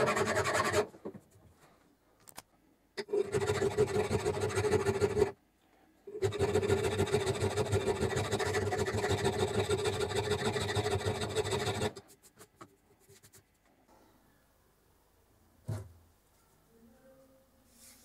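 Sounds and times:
file scraping steel: 0.0 - 0.9, 3.0 - 5.4, 6.1 - 12.0.

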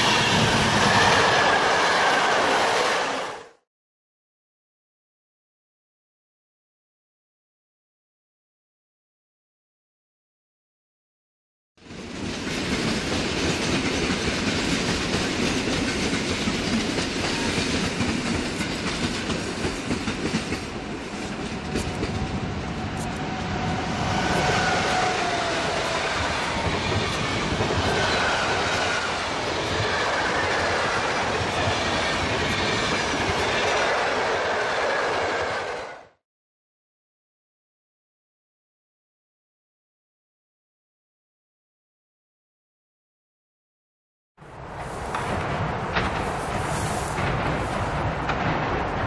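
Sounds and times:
train passing at speed: 0.0 - 3.6, 11.8 - 36.2, 44.4 - 49.0.

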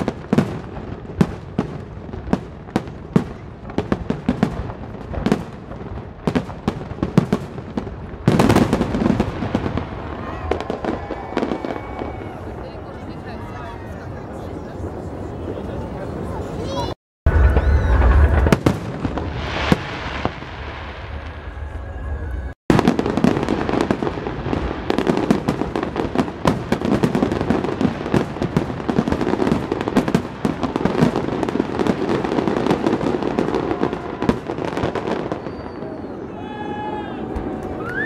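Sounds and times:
firework bangs: 0.0 - 16.7, 17.3 - 38.0
fireworks crackling and popping: 0.0 - 38.0
deep firework boom: 17.2 - 36.3.

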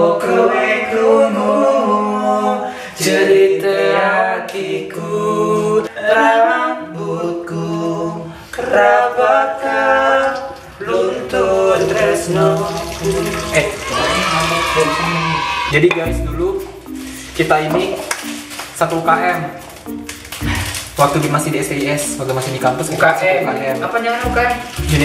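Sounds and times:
choir singing in harmony: 0.0 - 14.4.

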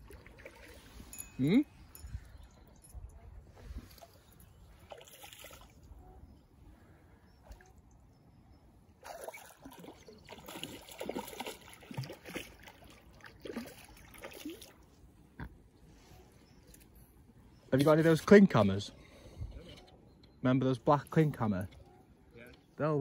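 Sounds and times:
water splashing and trickling: 0.0 - 6.0, 8.9 - 15.6, 20.5 - 23.0.

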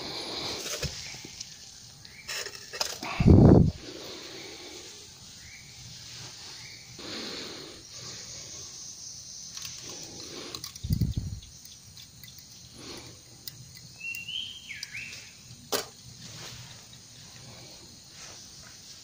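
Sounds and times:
bird chirp: 5.2 - 15.6.

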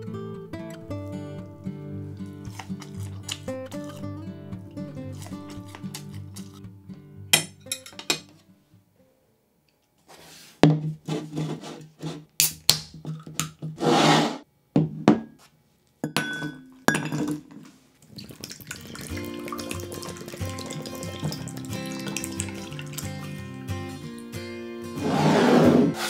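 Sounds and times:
soft background music: 0.0 - 8.7, 18.4 - 26.0
drink can snapped open: 2.5 - 4.0, 12.4 - 13.5.

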